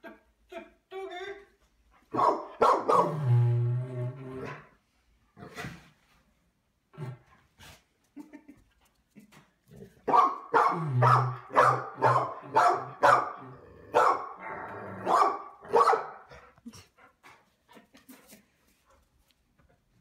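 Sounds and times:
dog barking: 2.1 - 3.2, 10.0 - 14.4, 15.0 - 16.3.

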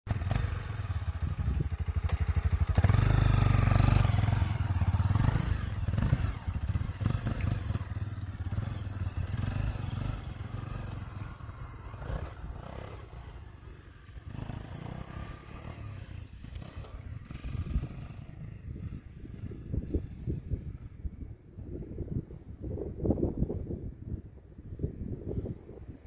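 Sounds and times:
motorcycle engine revving: 0.1 - 20.9.

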